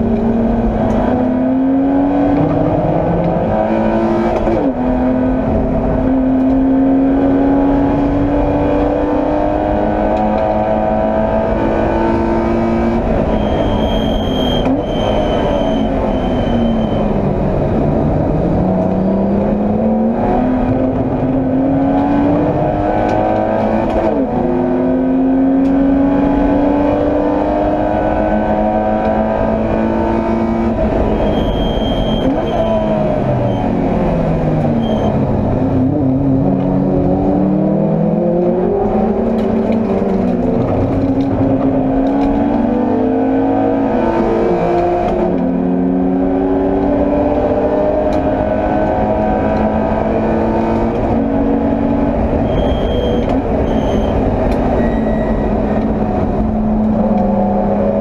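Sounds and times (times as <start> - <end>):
race car engine revving: 0.0 - 58.0
short high brake squeaks: 13.3 - 17.1, 31.2 - 32.9, 34.8 - 35.2, 52.4 - 54.2, 54.8 - 55.6.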